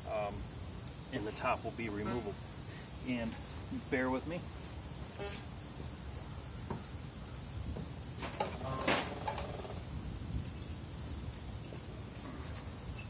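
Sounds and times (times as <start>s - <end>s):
cricket chirping high note: 5.0s - 5.6s.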